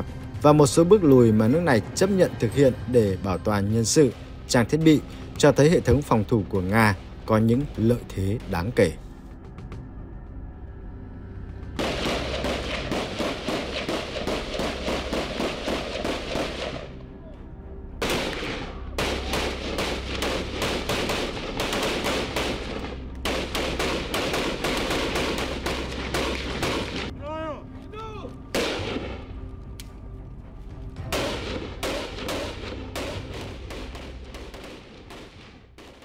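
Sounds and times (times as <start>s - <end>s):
assault rifle fire: 11.8s - 16.9s, 18.0s - 27.1s, 28.6s - 29.2s, 31.1s - 36.0s.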